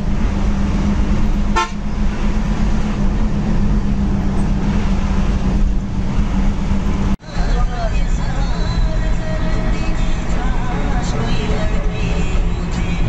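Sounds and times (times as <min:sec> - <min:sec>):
bus engine drone: 0:00.0 - 0:13.0
road and wind noise: 0:00.0 - 0:13.0.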